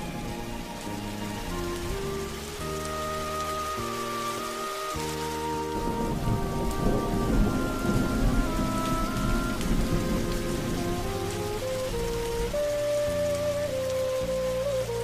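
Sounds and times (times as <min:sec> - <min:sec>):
soft music with held notes: 0:00.0 - 0:15.0
steady rain: 0:00.0 - 0:15.0
thunder rumbling: 0:00.0 - 0:15.0.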